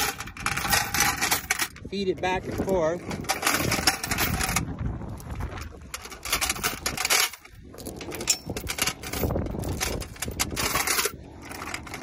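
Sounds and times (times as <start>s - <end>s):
metal chain clinking into can: 0.0s - 1.9s, 2.5s - 4.6s, 5.9s - 12.0s.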